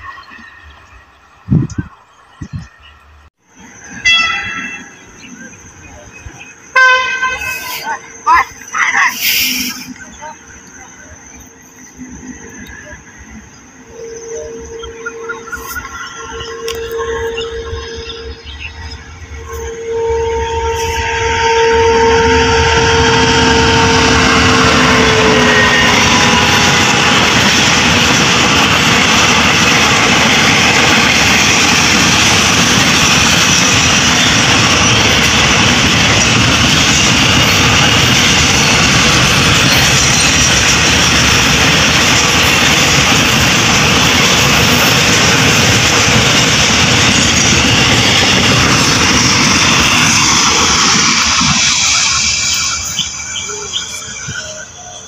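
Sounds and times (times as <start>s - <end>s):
freight wagons rumbling on rails: 0.0s - 55.0s
locomotive horn note: 4.0s - 4.9s, 6.7s - 8.0s, 13.9s - 28.0s.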